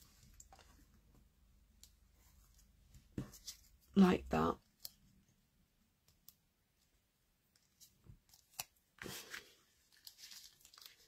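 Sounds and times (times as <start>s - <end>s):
ribbon and cardstock rustling: 7.7s - 11.0s.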